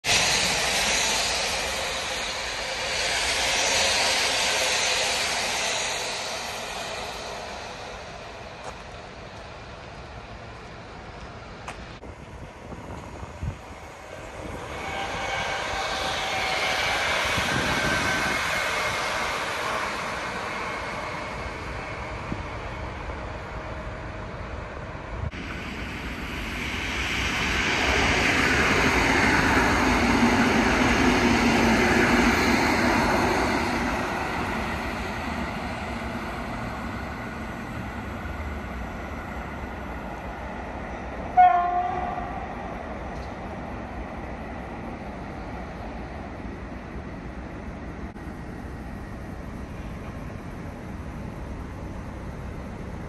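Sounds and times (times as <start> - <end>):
electric train passing: 0.0 - 53.0
train horn blast: 41.3 - 42.5.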